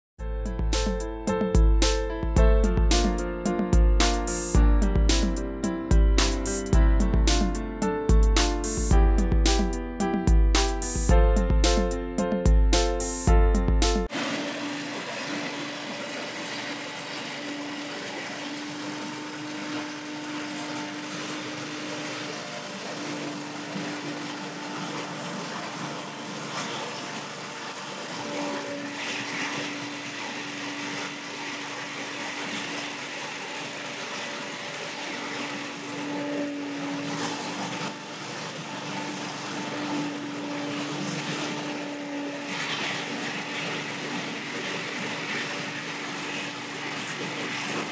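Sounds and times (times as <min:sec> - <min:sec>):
leaf blower engine running: 0:14.1 - 0:47.9.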